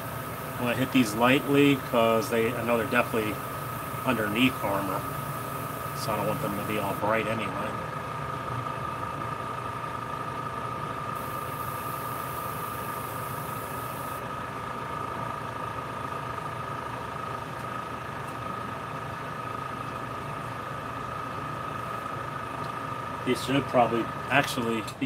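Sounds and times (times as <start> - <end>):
airbrush spraying hiss: 0.0 - 7.0, 11.2 - 14.2
exhaust fan humming: 0.0 - 25.0.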